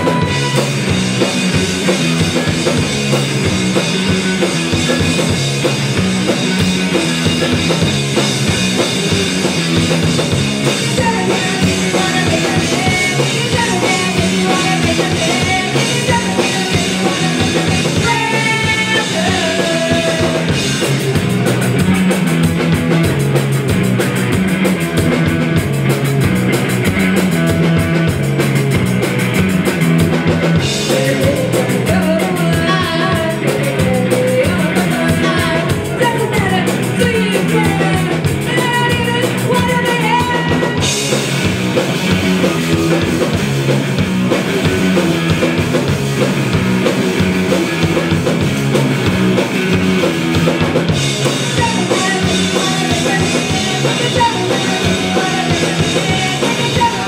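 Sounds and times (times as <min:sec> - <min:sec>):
woman singing: 0:00.0 - 0:00.7, 0:10.7 - 0:20.6, 0:30.8 - 0:40.9, 0:51.3 - 0:57.0
punk rock band playing: 0:00.0 - 0:57.0.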